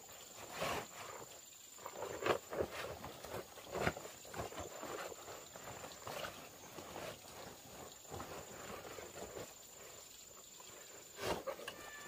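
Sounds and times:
waterproof suit rustling: 0.0s - 12.0s.

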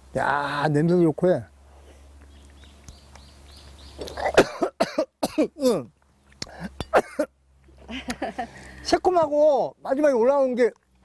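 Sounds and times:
man coughing: 4.2s - 5.8s, 6.5s - 7.3s.

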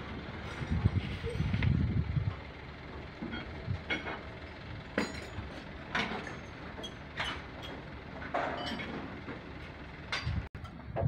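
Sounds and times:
steady low rumble: 0.0s - 5.6s
metallic clanks and knocks: 3.2s - 11.0s.

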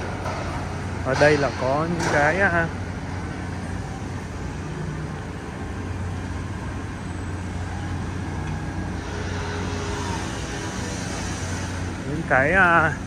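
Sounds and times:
city traffic rumble: 0.0s - 13.0s
engine hum: 0.0s - 13.0s.

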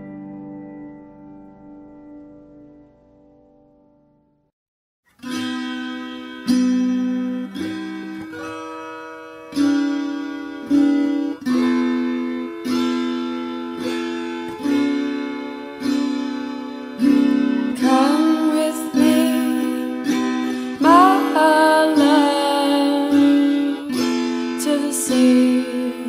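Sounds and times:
plucked guitar notes: 0.0s - 3.8s, 5.2s - 26.0s
person singing: 17.8s - 26.0s.

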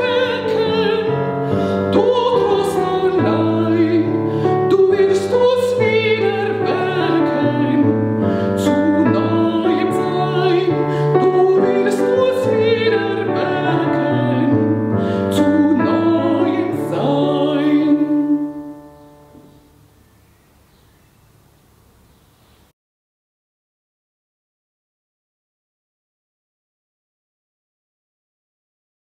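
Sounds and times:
woman singing a hymn: 0.0s - 19.5s
piano accompaniment: 0.0s - 20.1s.

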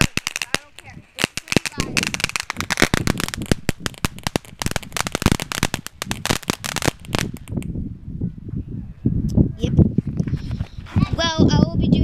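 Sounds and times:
firework crackling pops: 0.0s - 7.7s.

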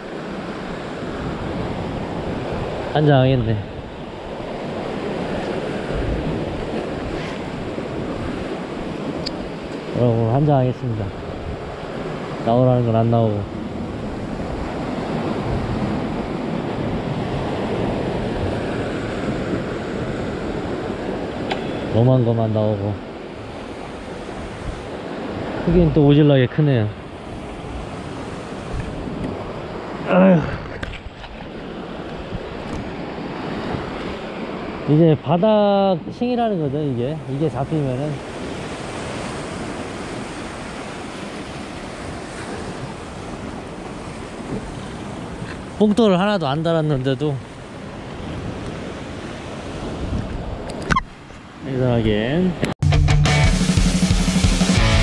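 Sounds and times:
wind on microphone: 0.0s - 12.5s, 23.3s - 26.0s, 27.1s - 34.6s, 47.4s - 52.8s
ocean surf against rocks: 0.0s - 55.0s.

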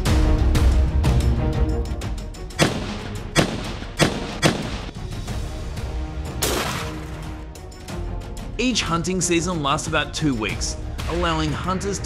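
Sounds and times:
background music: 0.0s - 12.0s
gunshots: 2.6s - 5.0s, 6.4s - 7.1s.

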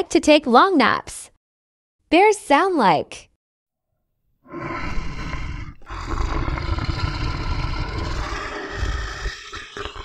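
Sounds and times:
bear growling: 4.5s - 10.0s.

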